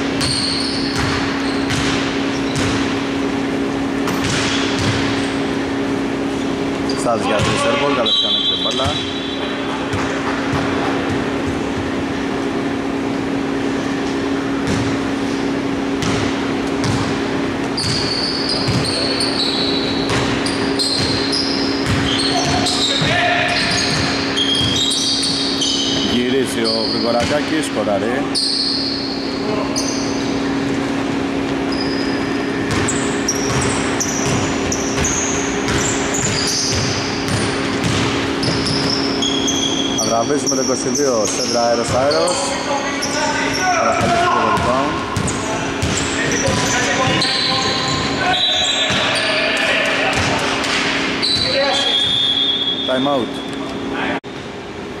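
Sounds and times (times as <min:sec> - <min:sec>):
shoes squeaking on floor: 0:00.0 - 0:02.8, 0:06.4 - 0:12.0, 0:16.7 - 0:27.5, 0:28.2 - 0:30.4, 0:31.4 - 0:50.4, 0:51.1 - 0:53.7
steady low hum: 0:00.0 - 0:48.3
ball dribbling thuds: 0:00.2 - 0:03.0, 0:04.0 - 0:05.2, 0:07.3 - 0:07.8, 0:14.6 - 0:15.0, 0:15.9 - 0:19.2, 0:20.0 - 0:26.2, 0:26.9 - 0:27.7, 0:32.6 - 0:40.2, 0:41.2 - 0:42.2, 0:43.8 - 0:49.2, 0:50.0 - 0:52.3
basketball bouncing on hardwood: 0:00.9 - 0:02.8, 0:04.1 - 0:05.1, 0:16.0 - 0:17.2, 0:17.8 - 0:18.9, 0:20.1 - 0:20.4, 0:21.8 - 0:23.2, 0:32.7 - 0:39.0, 0:44.0 - 0:47.2
shoes squeaking on hardwood: 0:17.6 - 0:26.1, 0:31.5 - 0:40.2.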